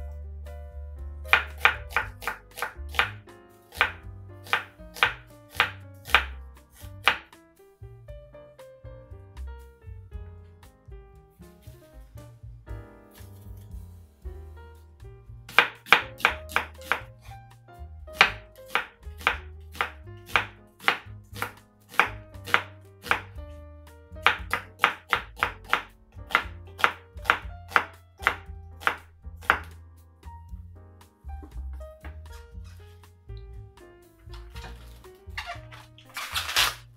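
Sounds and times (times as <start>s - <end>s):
knife slicing on cutting board: 1.3s - 7.2s, 34.3s - 36.9s.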